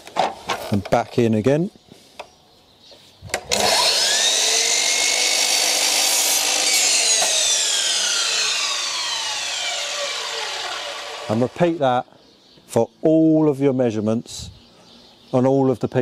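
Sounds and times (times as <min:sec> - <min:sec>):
mitre saw blade spinning: 0:03.5 - 0:11.6
saw cutting wood moulding: 0:03.5 - 0:11.8.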